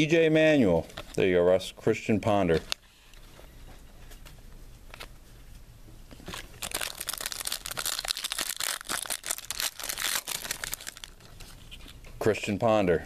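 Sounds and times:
foil wrapper crinkling and tearing: 6.3 - 12.0.

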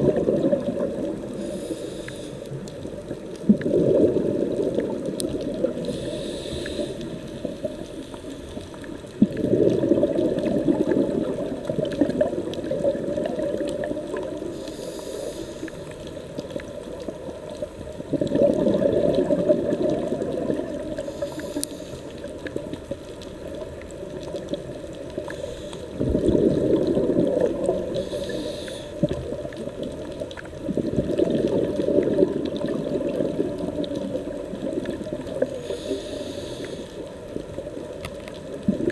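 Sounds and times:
exhaled air bubbling underwater: 0.0 - 38.9
regulator inhalation hiss: 1.4 - 2.6, 5.9 - 8.5, 14.5 - 15.8, 21.0 - 22.1, 25.3 - 26.0, 27.9 - 29.1, 35.6 - 37.0.

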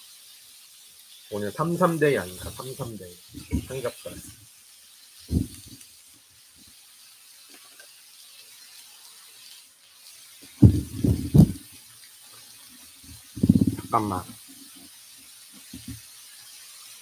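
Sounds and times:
meat sizzling on grill pan: 0.0 - 17.0.

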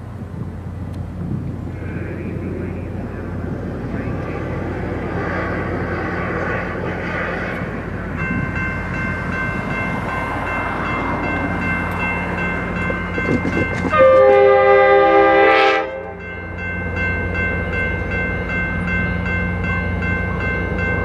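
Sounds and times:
diesel locomotive rumbling: 0.0 - 21.0
high train squeal: 1.7 - 15.4.

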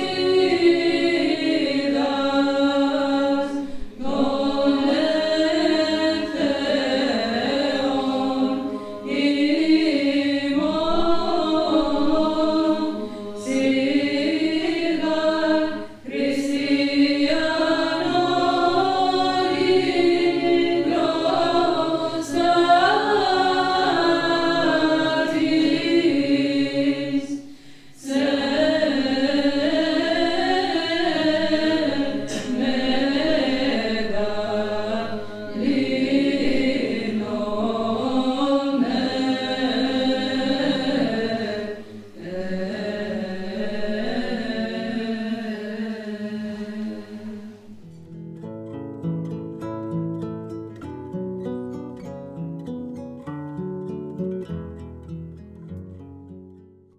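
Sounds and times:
women's choir chanting a cappella: 0.0 - 48.0.

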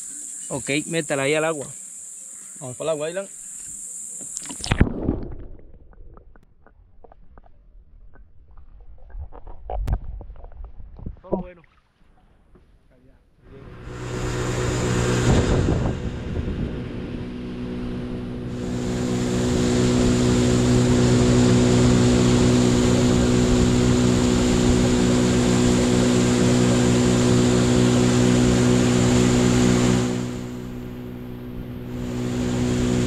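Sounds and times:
rushing water hiss: 0.0 - 4.8, 18.5 - 31.0
outboard motor running: 13.4 - 33.0.

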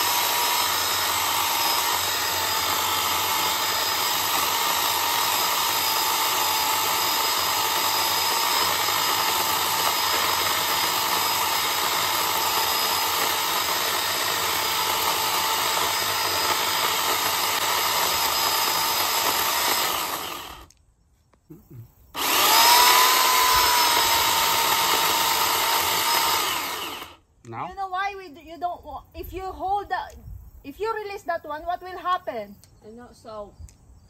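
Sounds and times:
electric chainsaw cutting wood: 0.0 - 20.7, 22.1 - 27.2.

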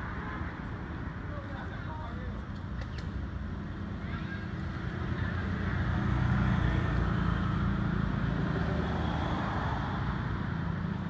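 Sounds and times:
motor vehicle passing: 4.6 - 11.0.

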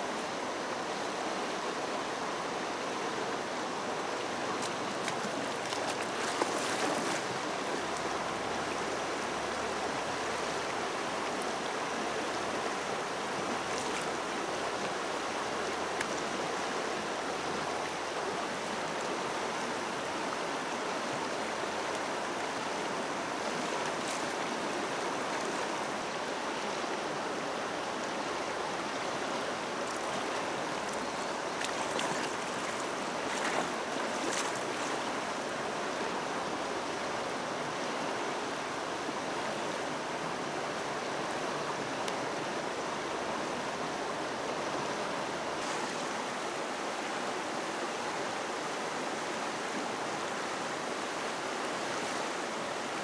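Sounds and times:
river rushing: 0.0 - 53.0
water splashes: 4.4 - 11.4, 29.8 - 35.6.

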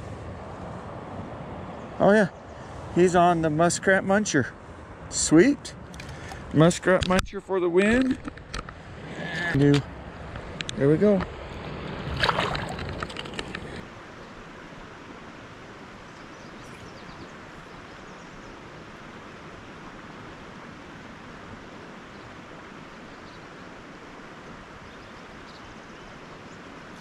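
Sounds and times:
river water rushing: 7.7 - 27.0.

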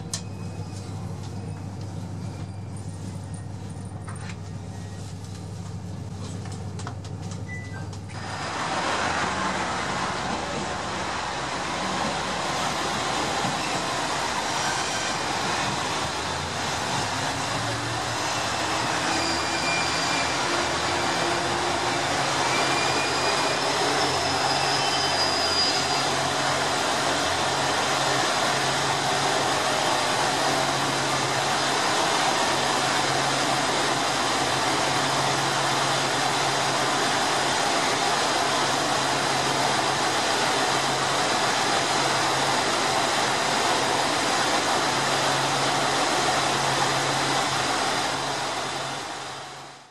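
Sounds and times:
diesel railcar engines idling: 0.0 - 49.8.

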